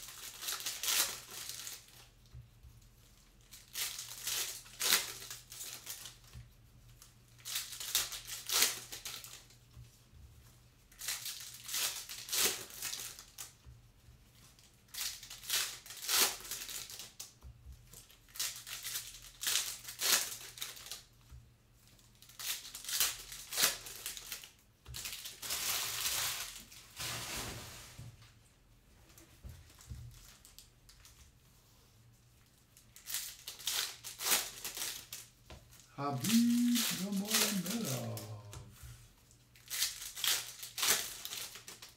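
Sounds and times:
foil card pack crinkling: 0.0 - 2.0, 14.9 - 17.2, 32.8 - 38.3, 39.6 - 41.9.

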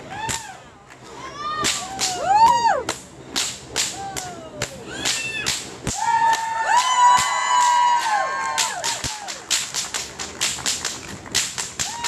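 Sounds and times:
whips cracking: 2.9 - 12.0.

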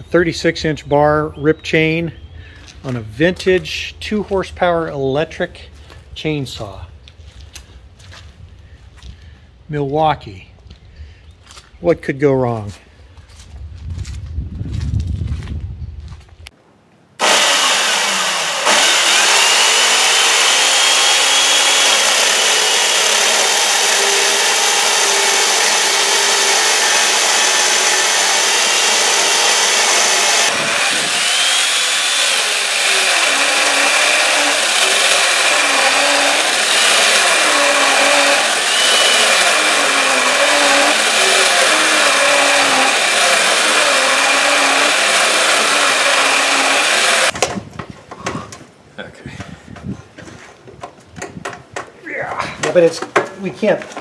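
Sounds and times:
electric chainsaw cutting log: 17.2 - 47.4.

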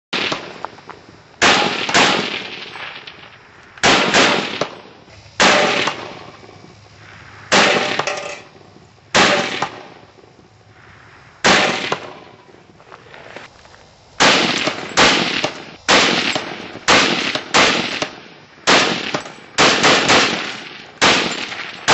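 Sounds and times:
rifle shots with long echo: 0.1 - 0.8, 1.4 - 8.2, 9.1 - 10.1, 11.4 - 12.6, 14.2 - 21.9.

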